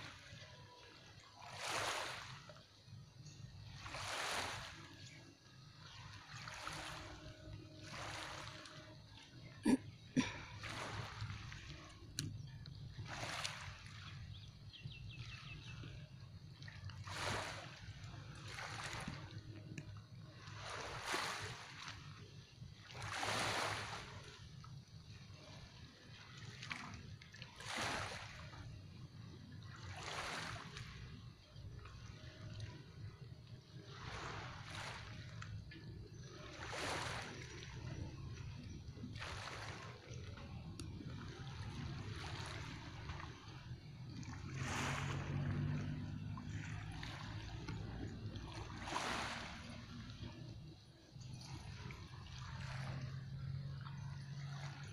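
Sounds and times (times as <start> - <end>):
water lapping against boat hulls: 0.0 - 54.9
low steady rumble: 40.3 - 54.8.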